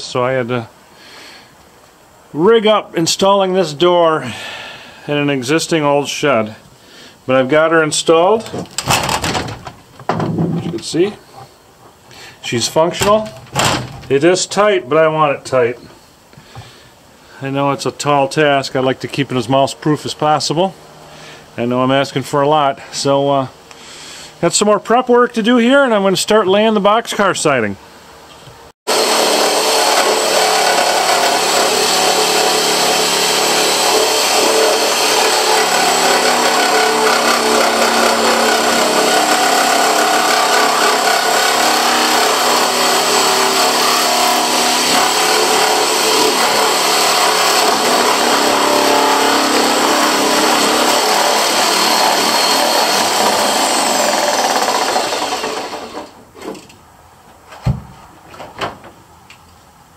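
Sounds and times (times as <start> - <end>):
electric power tool running: 28.9 - 56.2.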